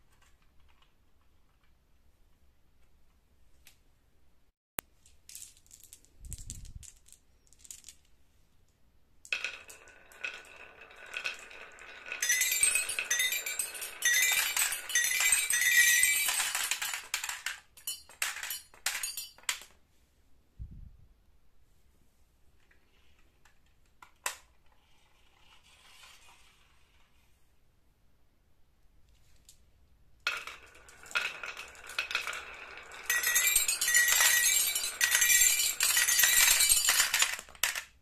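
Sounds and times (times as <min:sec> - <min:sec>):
marbles rolling on wooden track: 0:05.0 - 0:08.2, 0:09.2 - 0:19.8, 0:22.7 - 0:27.2, 0:30.2 - 0:38.0.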